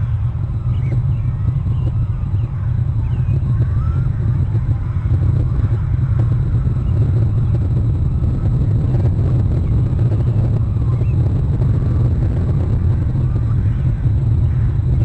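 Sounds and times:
high bird calls: 0.0s - 7.6s
wind buffeting microphone: 0.0s - 15.0s.

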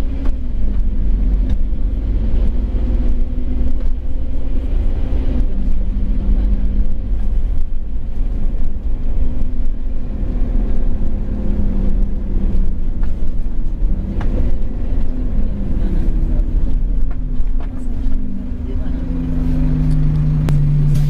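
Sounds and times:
bus diesel engine drone: 0.0s - 21.0s
road noise: 0.0s - 21.0s.

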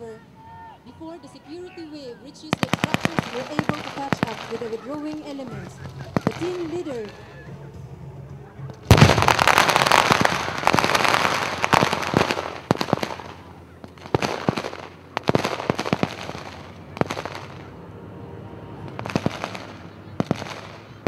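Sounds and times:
explosion roar: 5.5s - 13.4s, 14.0s - 21.0s.

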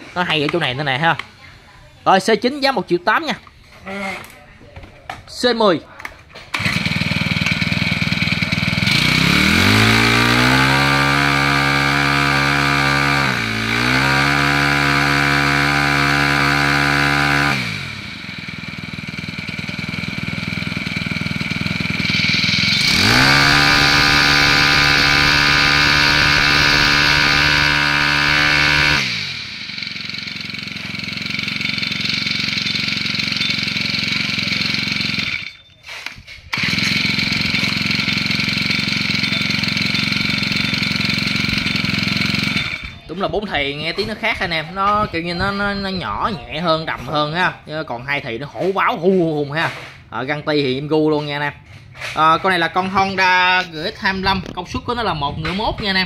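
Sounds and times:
brush-cutter engine revving: 6.4s - 43.2s.

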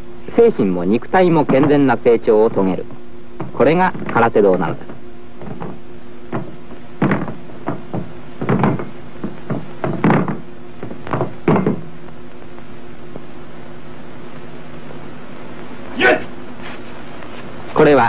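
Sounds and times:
steady low hum: 0.0s - 18.0s
sharp knocks and thuds: 1.4s - 1.9s, 3.4s - 11.9s.

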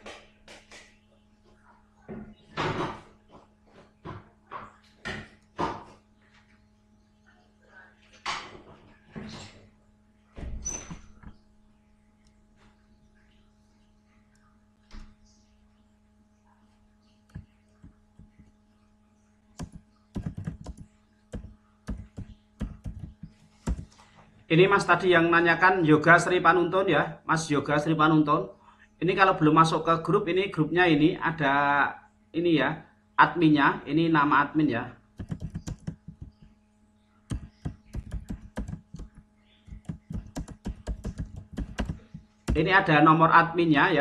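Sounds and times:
faint electrical hum: 0.0s - 44.0s
typing on computer keyboard: 17.3s - 18.4s, 19.6s - 23.9s, 35.2s - 36.5s, 37.3s - 42.6s.

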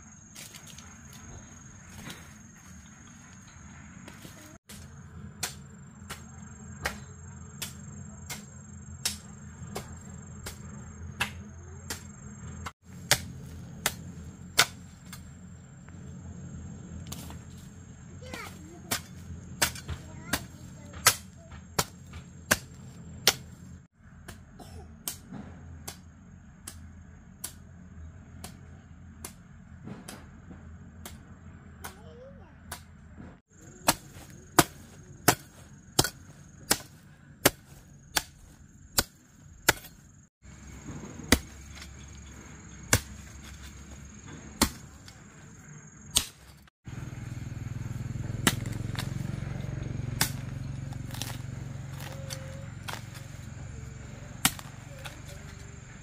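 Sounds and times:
hoe chopping into hard soil: 33.7s - 45.2s, 46.1s - 46.6s, 48.3s - 53.5s, 54.4s - 55.2s.

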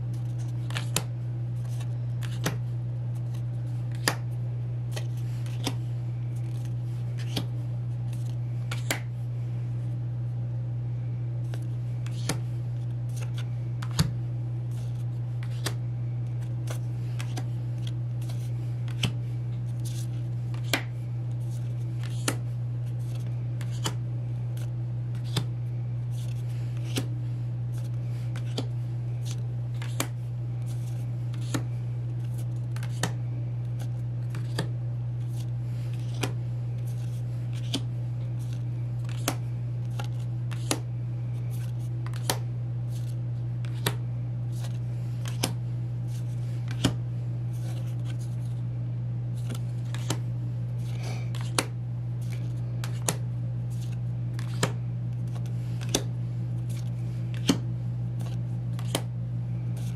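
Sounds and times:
steady low hum: 0.0s - 59.9s
card rustles: 0.1s - 4.3s, 4.9s - 9.1s, 11.4s - 48.6s, 49.3s - 57.6s, 58.2s - 59.1s, 59.7s - 59.9s
photocards snapping: 42.0s - 42.4s.

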